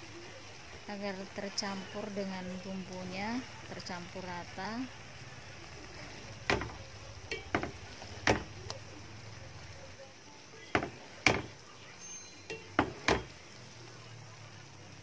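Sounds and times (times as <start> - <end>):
spoon knocking and scraping a pan: 6.0 - 8.9, 10.7 - 11.6, 12.4 - 13.5.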